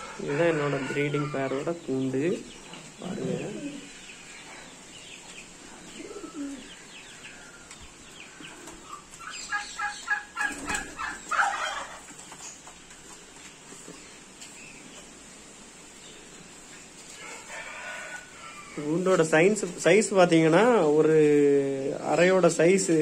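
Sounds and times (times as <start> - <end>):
pigeons cooing: 0.0 - 12.5
high repeated bird calls: 1.1 - 12.7.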